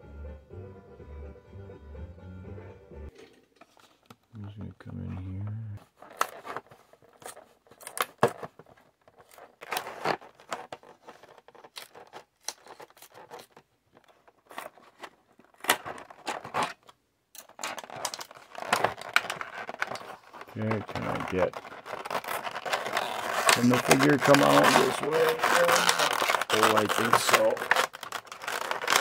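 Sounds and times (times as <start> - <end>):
plastic packaging crinkling: 5.9 - 29.0.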